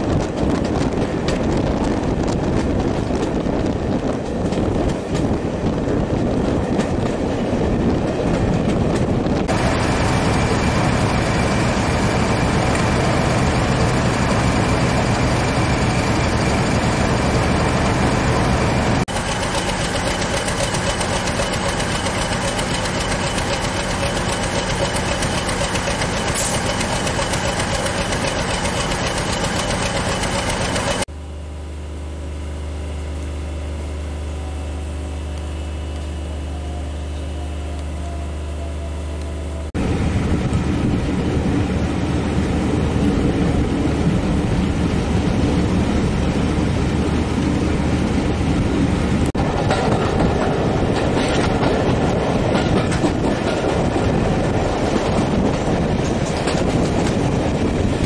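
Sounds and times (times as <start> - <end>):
diesel locomotive engine running: 0.0 - 58.0.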